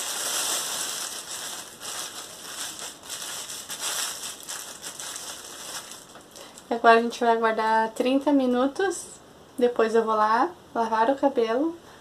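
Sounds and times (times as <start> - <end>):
plastic hair cap crinkling: 0.0 - 6.7.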